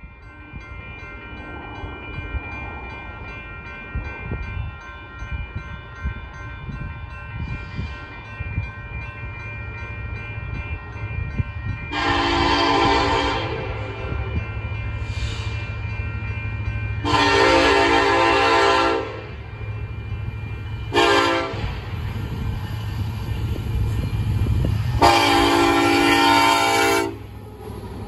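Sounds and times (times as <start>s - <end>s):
wind on microphone: 0.0s - 18.6s, 19.2s - 26.7s
approaching freight train: 0.0s - 28.0s
locomotive air horn: 11.9s - 14.0s, 17.0s - 19.3s, 20.9s - 21.8s, 25.0s - 27.3s.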